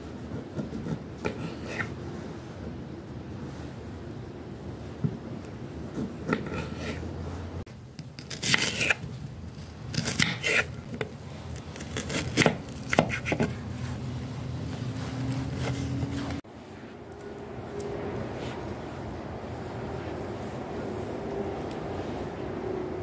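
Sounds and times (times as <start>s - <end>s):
steady low hum: 9.0s - 23.0s
knife slicing onion on plate: 9.9s - 11.0s, 11.8s - 13.6s.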